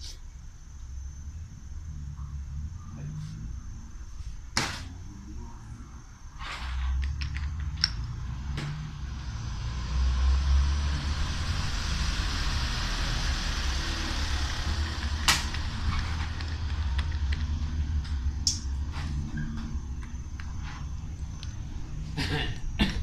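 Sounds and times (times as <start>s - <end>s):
vehicle engine rumble passing: 5.0s - 22.8s
bottle caps clacking on wood: 7.0s - 8.1s.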